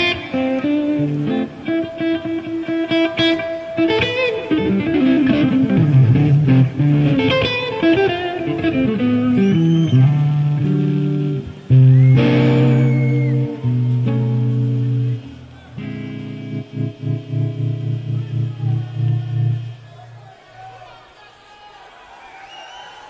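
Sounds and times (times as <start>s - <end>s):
guitar melody with bent notes: 0.0s - 20.2s
sustained bass notes: 10.0s - 19.8s.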